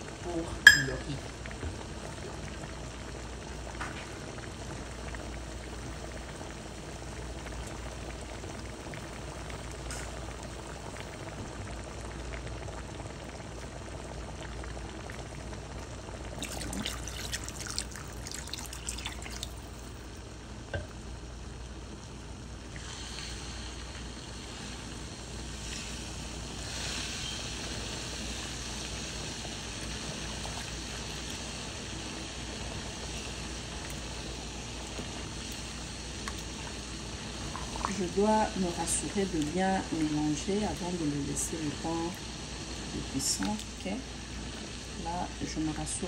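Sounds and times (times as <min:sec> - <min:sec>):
pot simmering and bubbling: 0:00.0 - 0:46.0
spoon stirring a pot: 0:00.7 - 0:01.0.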